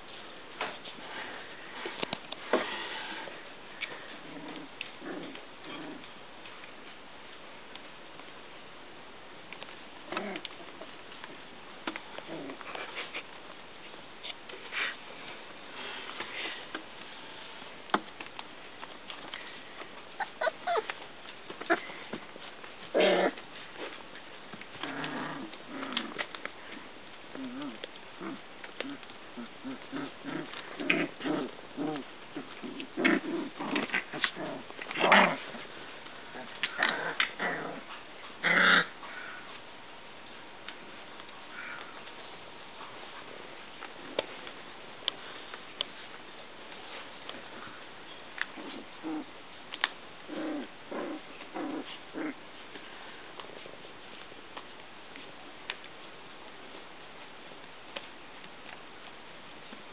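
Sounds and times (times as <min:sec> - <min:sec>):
puppies growling and yipping: 0:04.0 - 0:06.1, 0:20.0 - 0:24.1, 0:24.7 - 0:39.5, 0:48.4 - 0:52.4
puppy squeak: 0:20.2 - 0:20.8.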